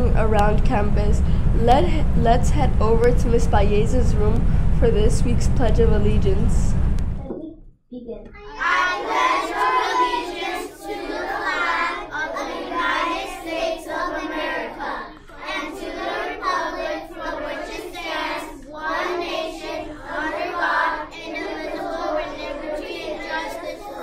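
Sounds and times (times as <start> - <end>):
children reciting in unison: 8.4 - 24.0.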